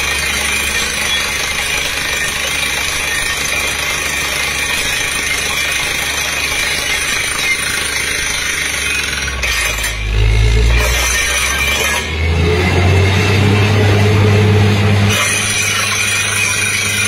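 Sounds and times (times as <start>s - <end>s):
drilling rig air hammer: 0.0s - 17.0s
low engine hum: 10.0s - 15.7s.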